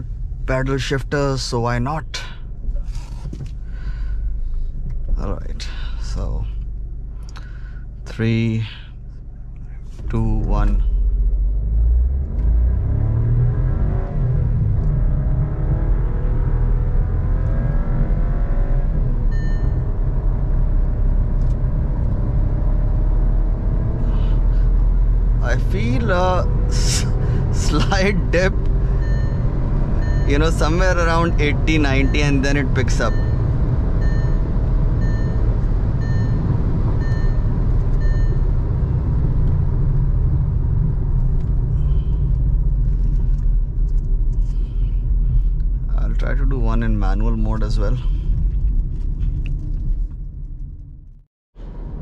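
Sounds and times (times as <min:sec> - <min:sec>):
car engine at full throttle: 0:00.0 - 0:50.8
road rumble: 0:00.0 - 0:52.0
electronic warning chime: 0:28.9 - 0:38.4.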